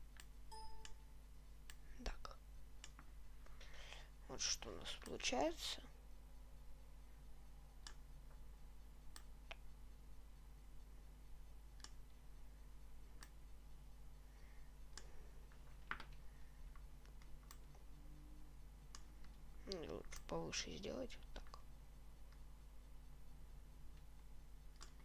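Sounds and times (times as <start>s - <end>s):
faint low hum: 0.0s - 25.0s
computer mouse clicks: 11.8s - 12.0s, 23.9s - 25.0s.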